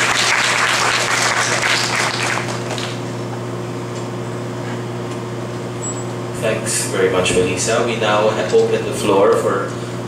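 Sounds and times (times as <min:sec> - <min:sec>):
audience applauding: 0:00.0 - 0:03.0
steady low hum: 0:00.0 - 0:10.0.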